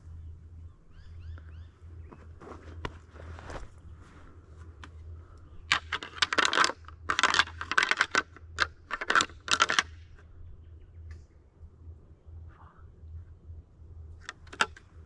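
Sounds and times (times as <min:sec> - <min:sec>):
antlers rattling together: 0:05.6 - 0:10.2.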